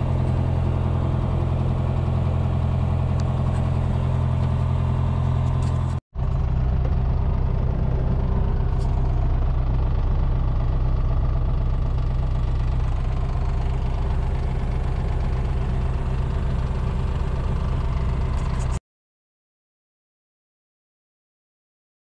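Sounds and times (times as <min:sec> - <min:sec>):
propeller aircraft engine running: 0:00.0 - 0:18.8.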